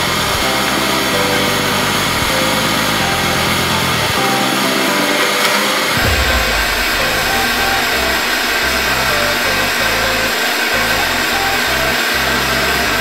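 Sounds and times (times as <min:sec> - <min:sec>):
electronic dance music: 0:00.4 - 0:12.0.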